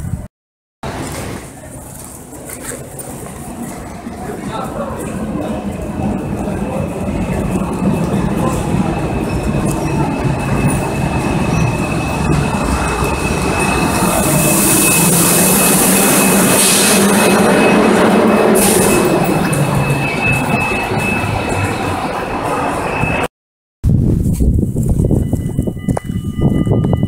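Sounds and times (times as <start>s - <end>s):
train rumbling and hissing: 0.8s - 23.3s
high brake squeal: 5.5s - 23.3s.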